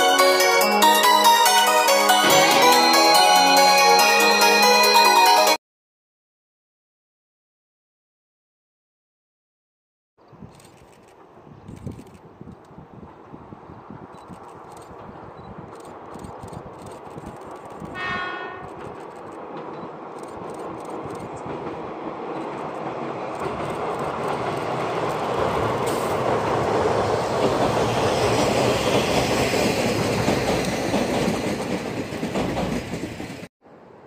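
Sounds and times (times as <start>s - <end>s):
bridge rumbling: 10.4s - 34.0s
train wheels clattering over joints: 18.6s - 33.5s.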